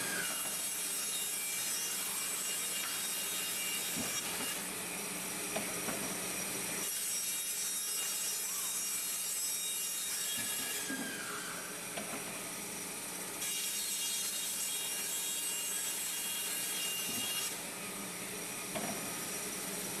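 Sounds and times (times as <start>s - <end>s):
band saw whining: 0.0s - 5.1s.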